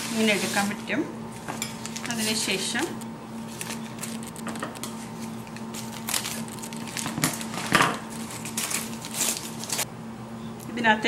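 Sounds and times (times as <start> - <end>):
steady low hum: 0.0 - 11.0
paper wrapper crinkling: 3.4 - 9.9.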